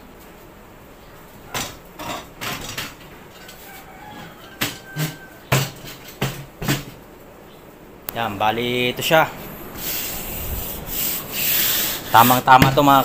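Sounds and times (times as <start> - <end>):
folding table knocking and clattering: 1.5 - 3.2, 4.1 - 7.0
heavy thumps: 12.5 - 13.0.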